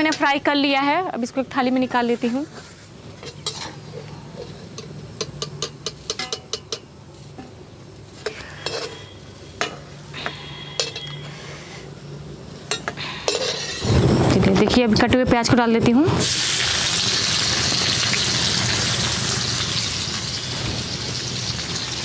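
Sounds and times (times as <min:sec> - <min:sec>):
steel spoon scraping and clinking: 0:03.2 - 0:06.9, 0:08.2 - 0:09.8, 0:10.7 - 0:11.3, 0:12.7 - 0:13.9
hot oil sizzling: 0:16.2 - 0:22.0.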